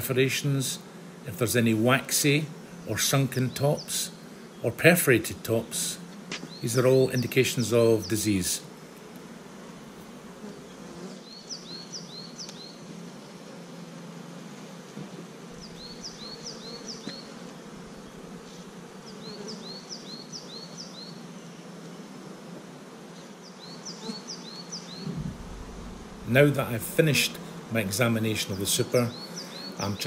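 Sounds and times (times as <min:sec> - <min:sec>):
honeybees humming: 0:00.0 - 0:30.0
small bird chirping: 0:11.2 - 0:12.8, 0:15.6 - 0:21.6.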